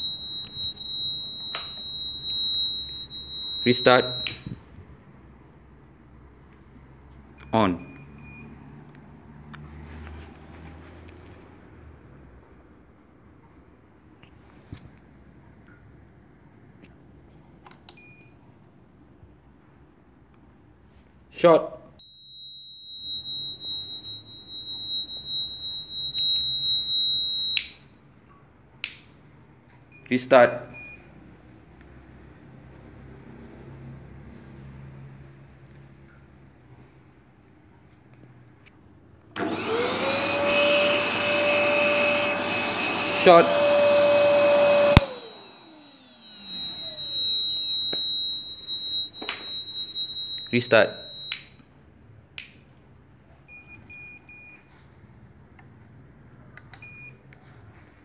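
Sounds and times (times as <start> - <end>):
high-pitched buzzer tone: 0.0 - 4.4, 22.0 - 27.6, 40.2 - 51.4
vacuum cleaner motor winding down: 39.4 - 51.3.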